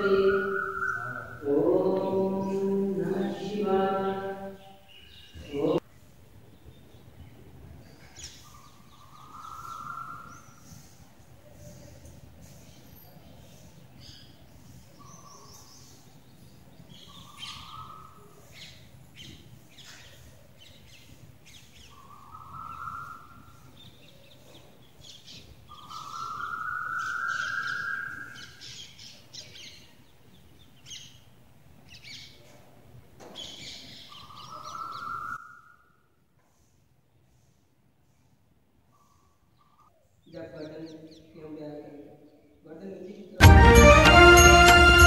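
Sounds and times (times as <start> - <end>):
bird rising call: 0.0 - 1.6
small birds chirping: 0.0 - 43.3.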